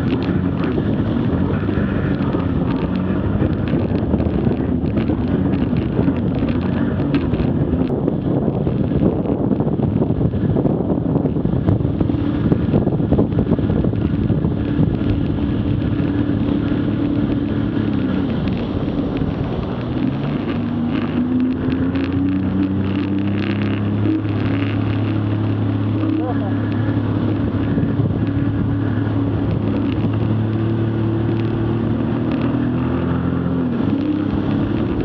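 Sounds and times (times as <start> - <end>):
jet ski engine: 0.0 - 35.0
wind and water spray: 0.0 - 35.0.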